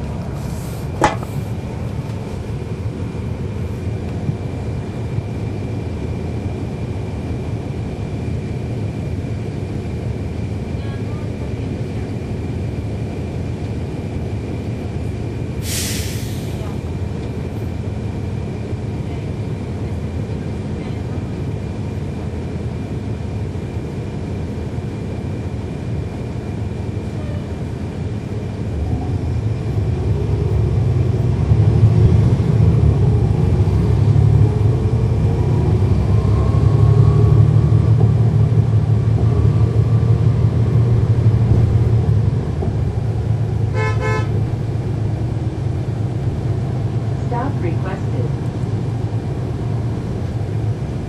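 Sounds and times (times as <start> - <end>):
bus diesel engine: 0.0 - 51.0
horn toot: 43.7 - 44.4.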